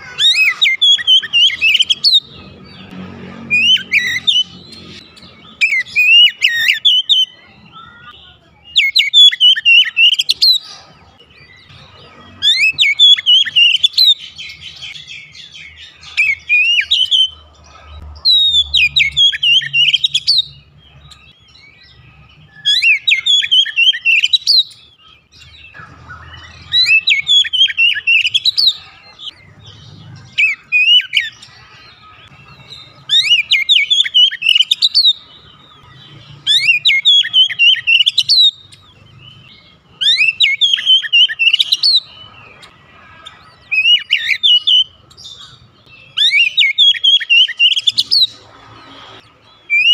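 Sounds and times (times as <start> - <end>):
bird singing whistles: 5.5 - 7.4, 8.7 - 10.6, 21.5 - 28.7, 32.2 - 35.3, 36.4 - 38.7, 40.0 - 42.1, 43.7 - 48.4, 49.6 - 49.9.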